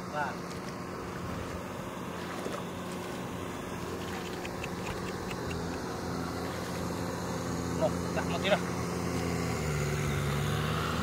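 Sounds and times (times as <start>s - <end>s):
tractor engine running: 2.8s - 9.4s.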